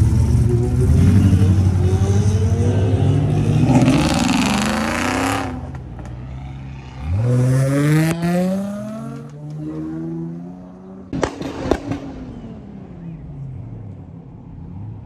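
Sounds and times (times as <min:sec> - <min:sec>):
pickup engine revving: 0:00.0 - 0:05.8
car engine accelerating away: 0:06.5 - 0:11.3.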